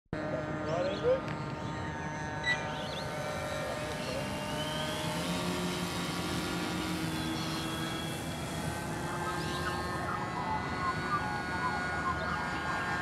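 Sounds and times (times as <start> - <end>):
electric model airplane propellers whining: 0.2 - 13.0.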